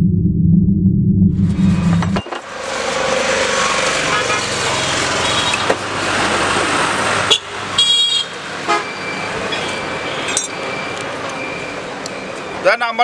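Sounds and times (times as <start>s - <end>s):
street traffic: 1.4s - 13.0s
vehicle horn toot: 4.0s - 5.7s, 7.3s - 9.0s.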